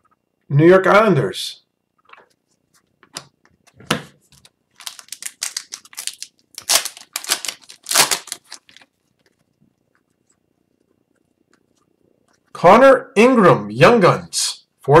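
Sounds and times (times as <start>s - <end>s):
cards being handled: 2.1s - 9.6s
foil wrapper tearing and crinkling: 4.7s - 9.4s.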